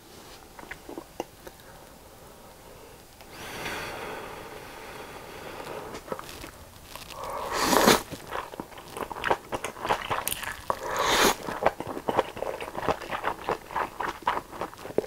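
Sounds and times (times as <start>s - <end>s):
noodle slurping: 5.5s - 15.0s
chewing mouth clicks: 6.0s - 15.0s.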